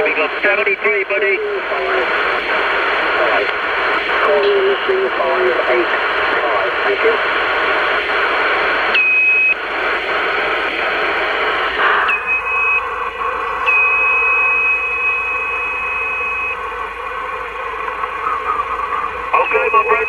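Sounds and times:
radio static: 0.0 - 20.0
high whistle: 13.7 - 16.6.

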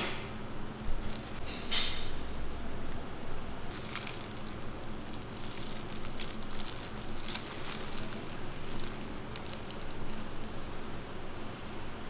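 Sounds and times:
steady low hum: 0.0 - 12.0
paper and plastic glove crinkling: 0.7 - 2.6, 3.7 - 10.6.

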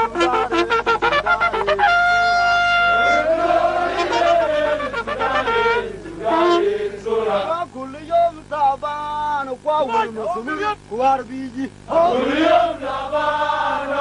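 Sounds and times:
horn long note: 0.0 - 6.9
group of voices singing: 2.9 - 7.5, 11.9 - 14.0.

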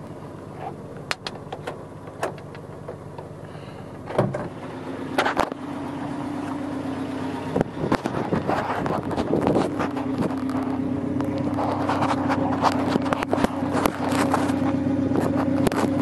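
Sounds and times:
car engine idling: 0.0 - 16.0
car door clunks: 0.6 - 3.3, 4.0 - 4.6.

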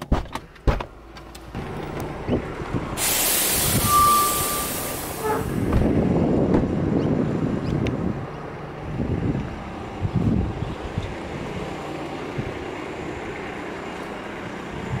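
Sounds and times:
heavy vehicle rumbling past: 1.6 - 15.0
loud hiss: 3.0 - 5.5
brief steady tone: 3.8 - 5.4.

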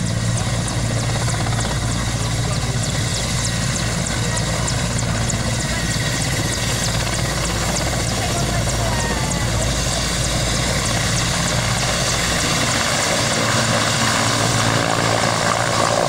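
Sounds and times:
helicopter rotor and engine: 0.0 - 16.0.

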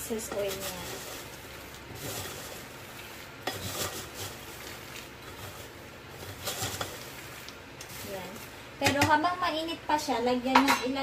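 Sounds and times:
peanuts rustling: 0.0 - 8.6
metal spoon scraping: 3.4 - 4.4, 5.2 - 7.0.

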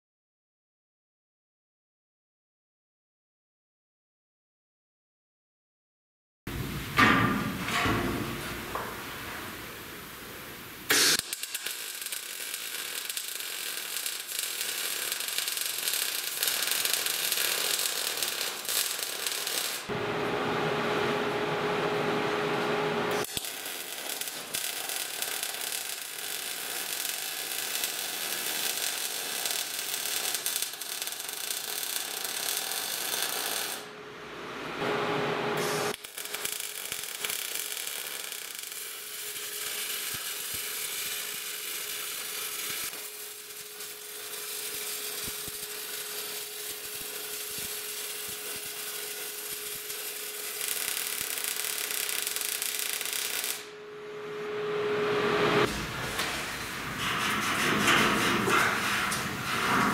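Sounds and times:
welder arc crackling and hissing: 8.3 - 20.0, 23.1 - 33.9, 35.6 - 53.8, 55.6 - 59.9
steady hum: 53.6 - 59.9.

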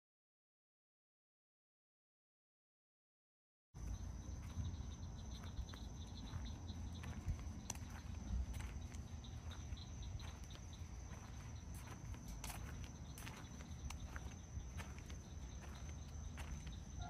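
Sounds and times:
insects chirping: 3.8 - 17.0
steady low rumble: 3.8 - 17.0.

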